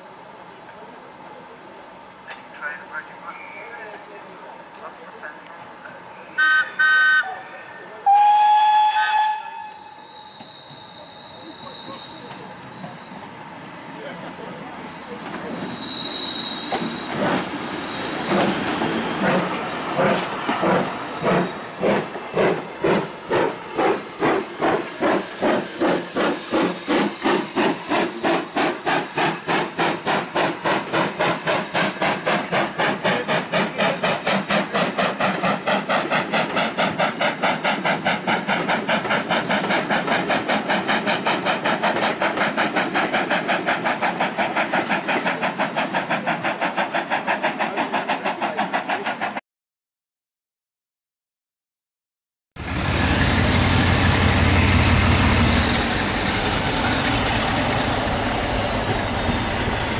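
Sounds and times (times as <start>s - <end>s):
steam locomotive exhaust beats: 14.4s - 49.4s, 52.6s - 59.9s.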